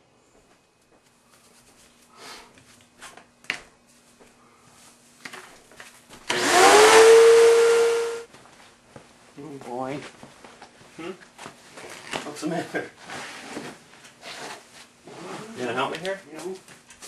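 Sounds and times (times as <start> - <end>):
vacuum cleaner running: 6.3 - 8.3.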